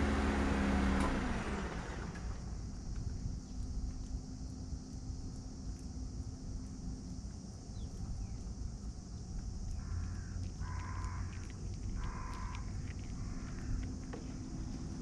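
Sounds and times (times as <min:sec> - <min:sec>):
cat crunching dry kibble: 0:09.2 - 0:15.0.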